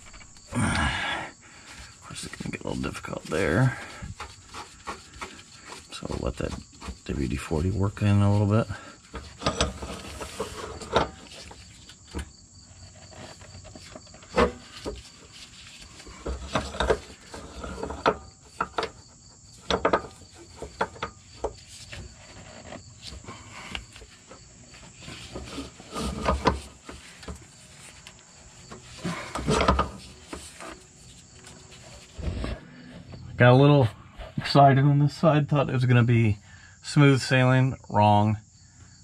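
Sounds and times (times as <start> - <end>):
rubber spring rubbing and creaking: 1.8 - 33.2
high-pitched insect trill: 36.0 - 39.0.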